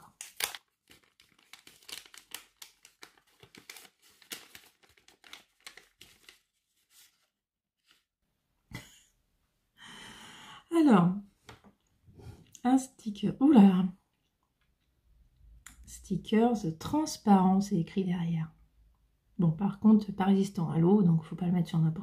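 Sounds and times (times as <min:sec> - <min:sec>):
wrapping crinkled and torn: 0:00.0 - 0:07.3.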